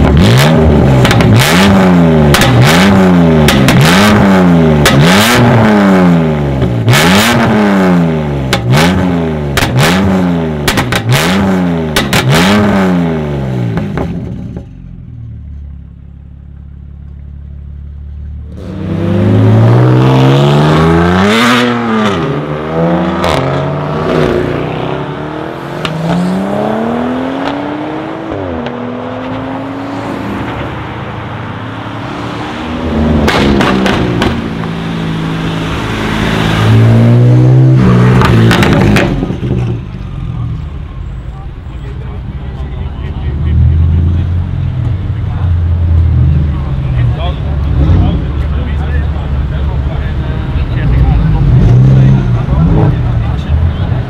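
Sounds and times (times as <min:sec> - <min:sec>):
car engine revving: 0:00.0 - 0:15.0, 0:17.8 - 0:54.0
car engine idling: 0:13.9 - 0:18.5, 0:38.2 - 0:51.5
exhaust crackles and pops: 0:33.2 - 0:34.8, 0:38.1 - 0:39.8.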